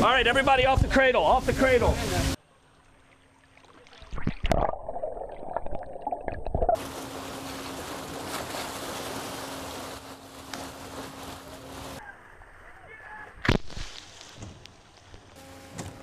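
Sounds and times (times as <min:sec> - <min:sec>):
muffled underwater rushing: 0:03.9 - 0:06.9.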